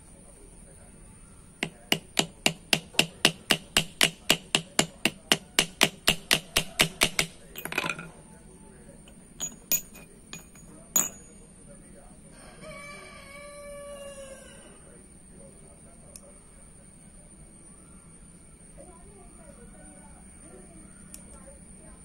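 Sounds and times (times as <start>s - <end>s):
small hammer tapping rivet: 1.6s - 8.1s, 9.1s - 11.3s
metallic clinks of rivets: 6.1s - 8.1s, 9.1s - 11.4s
rooster crowing: 12.3s - 14.9s.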